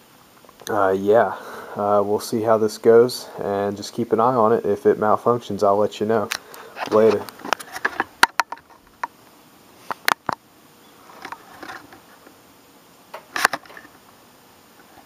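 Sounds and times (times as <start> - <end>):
soft rustling: 6.3 - 9.0
handling clicks and knocks: 6.3 - 9.1.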